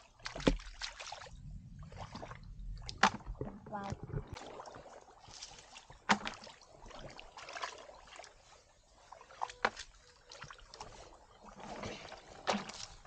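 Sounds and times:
hands splashing in water: 0:00.0 - 0:01.4, 0:02.0 - 0:08.4, 0:11.6 - 0:13.0.

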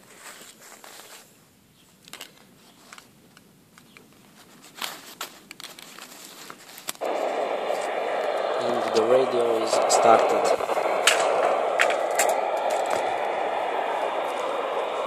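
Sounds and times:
plastic clicks and cable rustles: 0:02.0 - 0:07.0
radio static hiss: 0:07.0 - 0:15.0.

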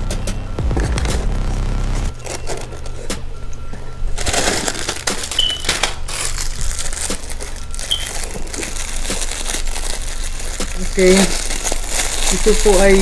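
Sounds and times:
plastic packaging crinkling: 0:02.1 - 0:03.1, 0:04.0 - 0:13.0.

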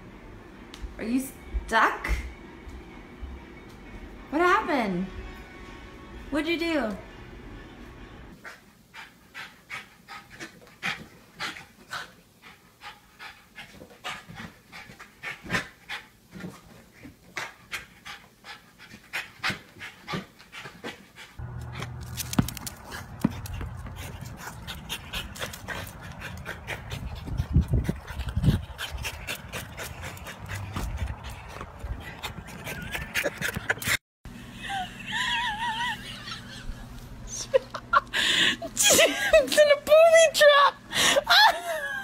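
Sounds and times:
dog panting: 0:08.4 - 0:34.0.

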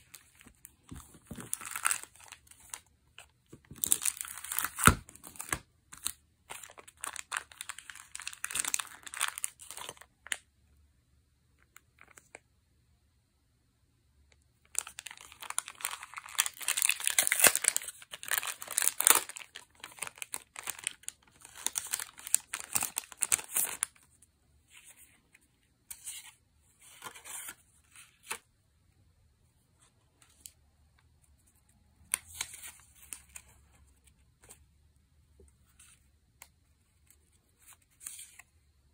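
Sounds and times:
plastic packaging crinkling and tearing: 0:00.1 - 0:02.9, 0:03.6 - 0:10.4, 0:14.7 - 0:24.0.

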